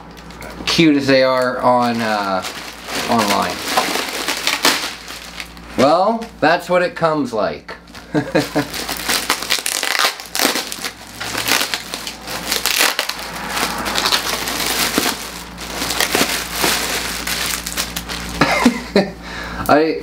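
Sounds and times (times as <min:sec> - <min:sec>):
plastic bag crinkling: 0:00.0 - 0:06.3, 0:07.8 - 0:18.7.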